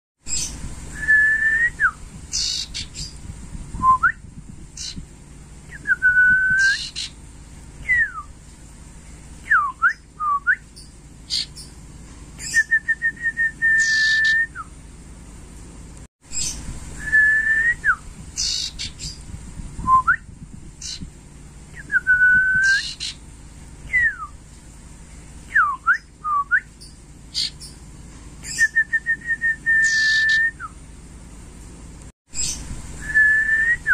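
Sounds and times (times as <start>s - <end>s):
bird singing whistled notes: 0.3s - 5.0s, 5.7s - 7.2s, 7.8s - 8.3s, 9.4s - 11.8s, 12.4s - 14.7s, 16.3s - 19.2s, 19.8s - 21.1s, 21.7s - 23.2s, 23.8s - 24.4s, 25.5s - 27.8s, 28.4s - 30.8s, 32.3s - 33.9s.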